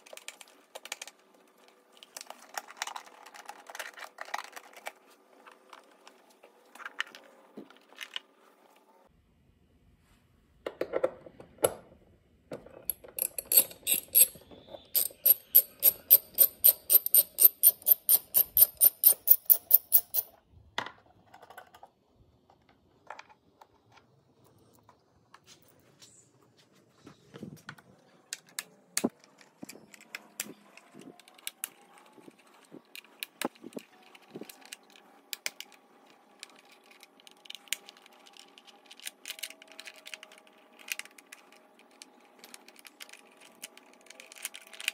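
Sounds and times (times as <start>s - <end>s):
socket ratchet clicking: 12.9s - 14.4s, 15.0s - 20.3s.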